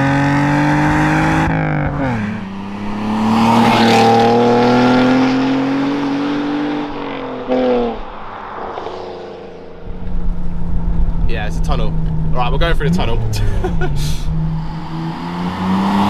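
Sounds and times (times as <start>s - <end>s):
car engine accelerating hard: 0.0s - 16.0s.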